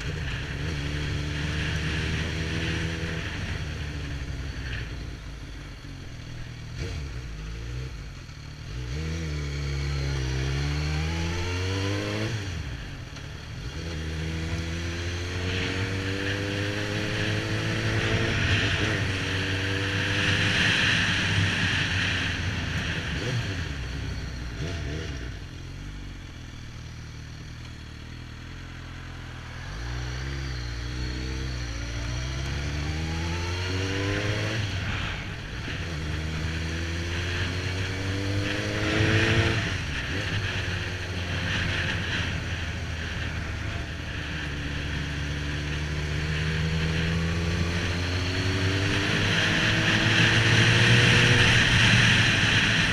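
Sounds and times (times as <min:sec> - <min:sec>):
motorcycle engine accelerating: 0:00.0 - 0:52.9.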